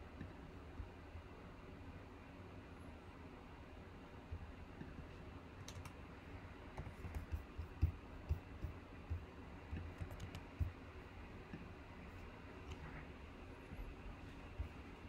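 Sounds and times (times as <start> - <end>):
typing on computer keyboard: 5.6 - 6.0, 9.7 - 10.7.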